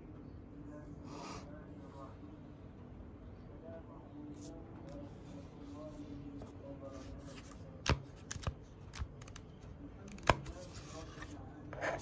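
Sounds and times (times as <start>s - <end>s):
notebook pages turning: 7.0s - 12.0s.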